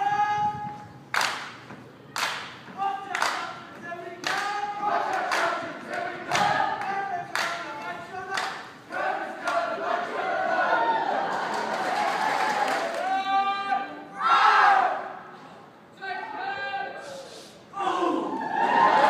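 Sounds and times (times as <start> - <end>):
sharp clap-like beat: 1.1 - 9.6
young voices chanting in unison: 4.4 - 7.2, 8.9 - 13.2, 13.9 - 15.3.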